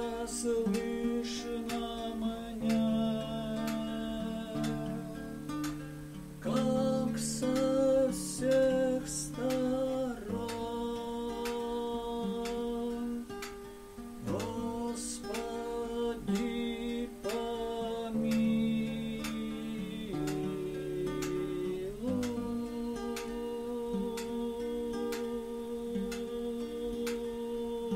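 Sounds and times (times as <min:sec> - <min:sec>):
classical guitar strummed chords: 0:00.0 - 0:27.9
man singing slow melody: 0:00.0 - 0:27.9.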